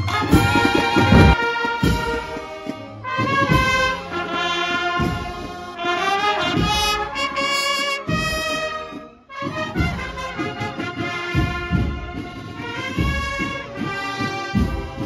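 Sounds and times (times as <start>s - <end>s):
low drum beat: 0.0s - 2.4s
brass band playing a march: 0.0s - 15.0s.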